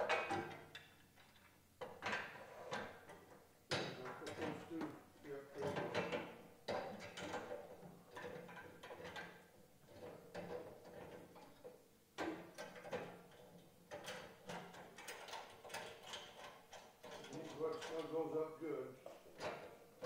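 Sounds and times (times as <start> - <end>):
metal camp kitchen parts clattering: 12.2 - 18.3.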